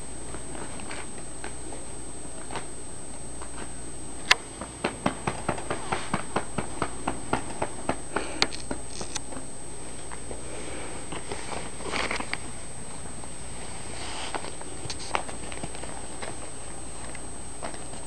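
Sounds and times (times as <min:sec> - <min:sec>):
puppy moving in blanket: 0:10.4 - 0:18.0.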